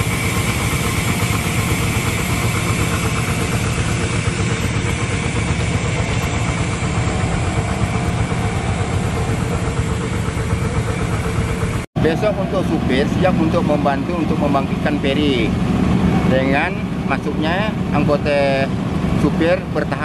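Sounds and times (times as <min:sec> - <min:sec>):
engine humming steadily: 0:00.0 - 0:20.0.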